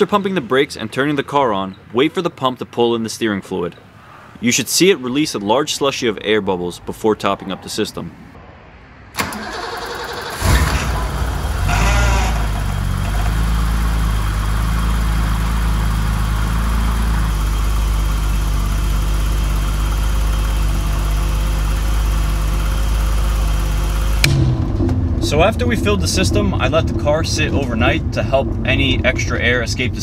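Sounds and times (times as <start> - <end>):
car engine starting and idling: 9.1 - 30.0.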